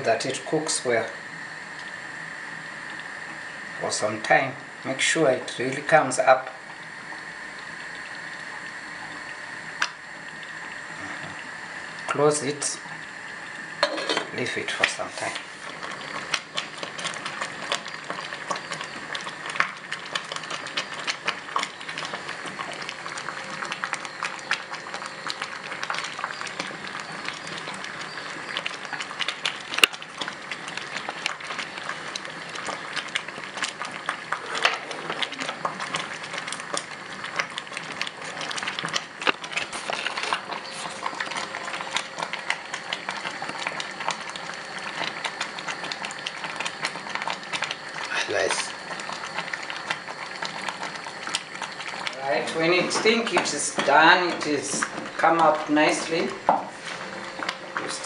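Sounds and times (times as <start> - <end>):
porridge bubbling and popping: 0.0 - 58.0
steady hiss: 52.2 - 58.0.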